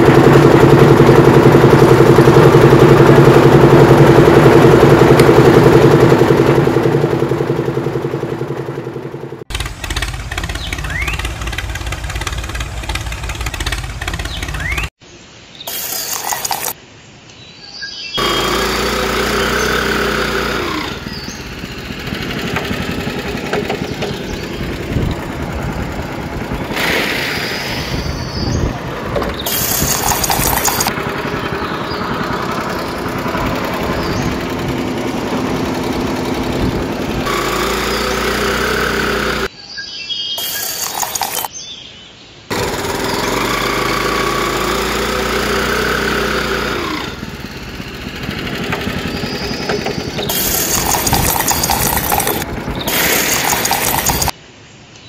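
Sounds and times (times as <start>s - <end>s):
motor running with fast pulsing: 9.5s - 14.9s, 15.7s - 16.8s, 18.2s - 27.4s, 29.4s - 39.5s, 40.4s - 41.5s, 42.5s - 54.4s.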